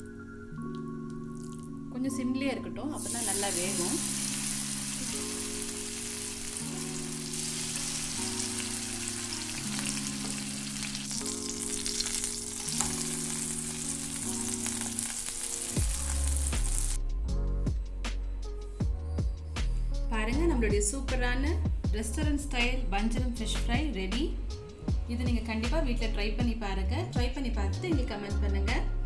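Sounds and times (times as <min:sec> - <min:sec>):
slow chord music: 0:00.0 - 0:20.1
fish sizzling in oil: 0:03.0 - 0:17.0.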